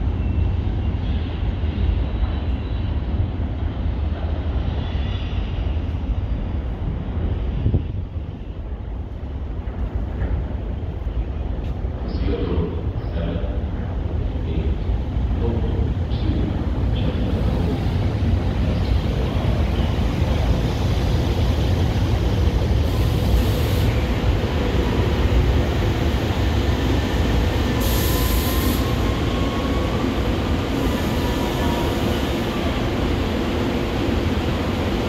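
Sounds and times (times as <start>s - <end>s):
faint train whine: 0.0s - 35.0s
train wheels rumbling on rail: 0.0s - 35.0s
short hissing bursts: 27.8s - 28.9s.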